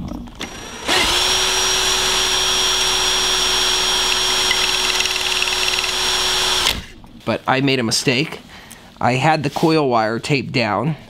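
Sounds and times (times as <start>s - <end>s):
cordless drill high whine: 0.4s - 7.0s.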